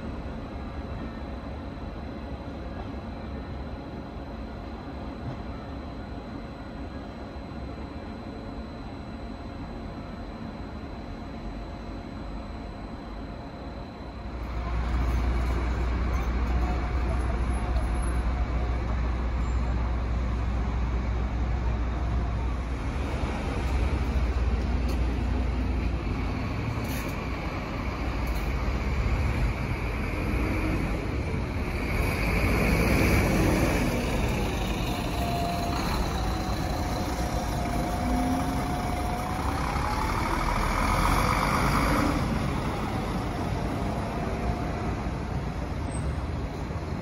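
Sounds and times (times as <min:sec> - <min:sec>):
vehicles rumbling: 0:14.3 - 0:47.0.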